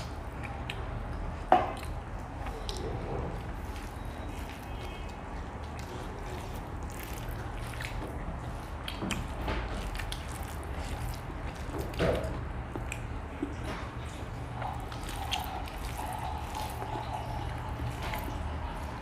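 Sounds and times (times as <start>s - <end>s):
wet chewing and lip smacks: 0.0s - 19.0s
fingers squishing rice: 3.4s - 12.0s, 14.5s - 19.0s.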